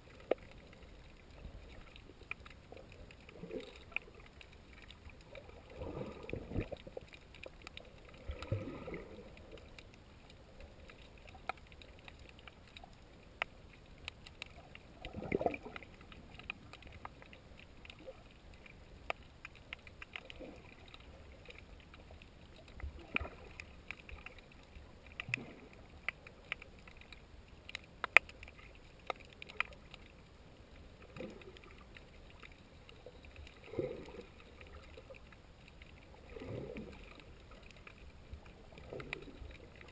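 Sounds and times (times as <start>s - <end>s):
muffled water wash: 0.0s - 39.9s
underwater clicks and crackles: 0.0s - 39.9s.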